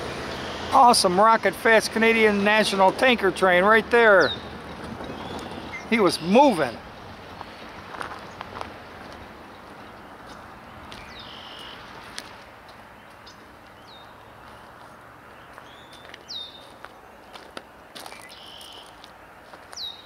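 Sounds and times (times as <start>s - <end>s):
bird whistled calls: 18.2s - 18.9s.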